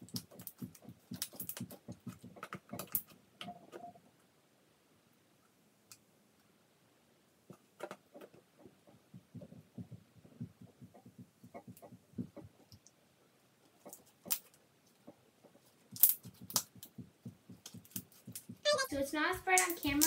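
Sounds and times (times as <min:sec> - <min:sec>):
slime squishing: 0:00.0 - 0:03.2.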